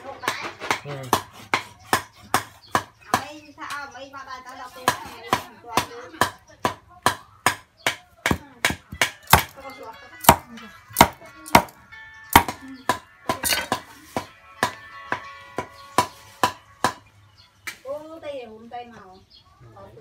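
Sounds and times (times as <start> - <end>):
cleaver chopping on wooden block: 0.3 - 3.3, 4.8 - 9.6, 10.2 - 10.4, 11.0 - 11.8, 12.4 - 13.8, 14.6 - 17.0.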